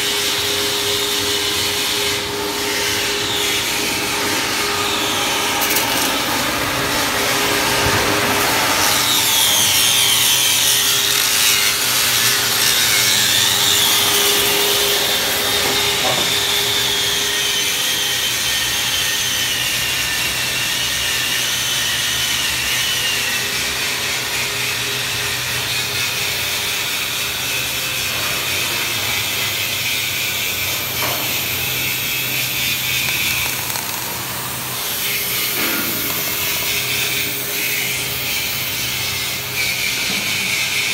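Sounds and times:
angle grinder grinding steel: 0:02.0 - 0:07.0, 0:30.4 - 0:39.0.

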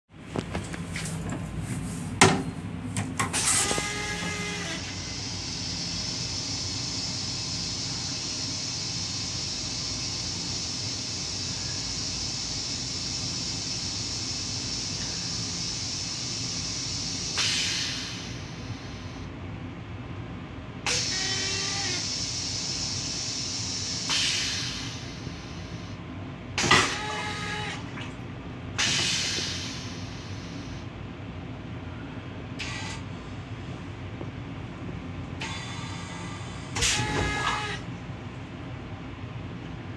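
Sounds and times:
railcar low rumble: 0:00.1 - 0:39.9
toilet flushing: 0:03.2 - 0:19.2, 0:26.6 - 0:30.8, 0:35.4 - 0:37.9
steady hiss: 0:04.6 - 0:19.3, 0:20.9 - 0:26.0
whistling squeal: 0:20.9 - 0:25.1, 0:35.5 - 0:37.8.

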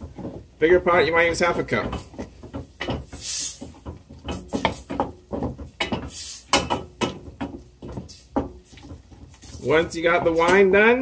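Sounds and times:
wooden spoon scraping a pot: 0:00.0 - 0:11.0.

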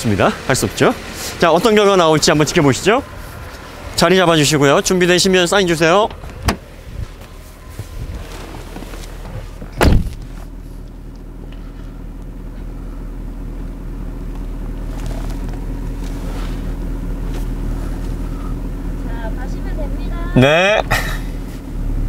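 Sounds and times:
car engine idling: 0:00.0 - 0:22.0
car door shutting: 0:05.9 - 0:10.6.

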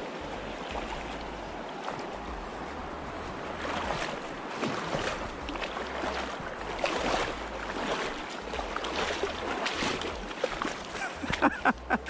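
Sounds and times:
creek water flowing: 0:00.0 - 0:12.0
fish splashing at the surface: 0:03.5 - 0:11.5.

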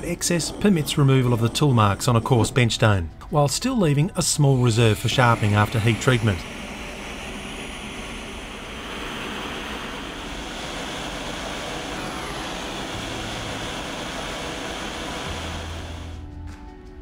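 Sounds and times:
gas torch flame hissing: 0:00.0 - 0:16.2.

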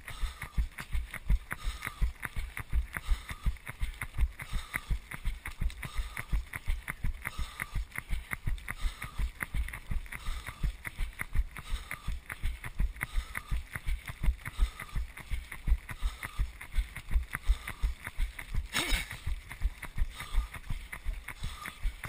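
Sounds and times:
running footsteps on wet pavement: 0:00.0 - 0:22.0.

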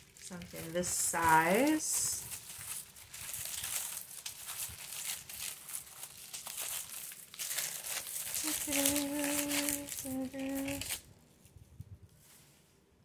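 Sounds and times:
paper wrap crinkling and tearing: 0:00.0 - 0:11.6.

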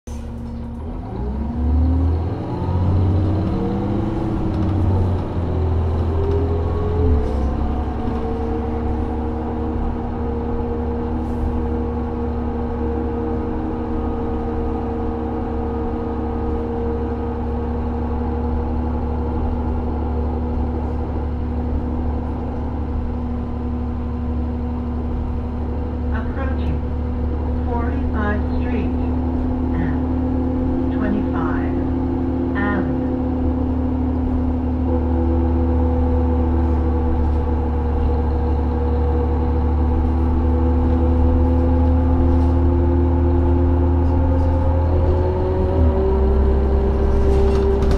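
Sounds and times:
bus engine accelerating: 0:00.1 - 0:47.9.

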